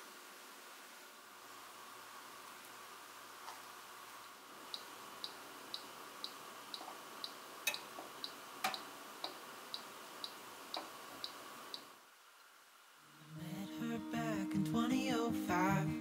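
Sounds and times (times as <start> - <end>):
dial timer ticking: 4.7 - 11.9.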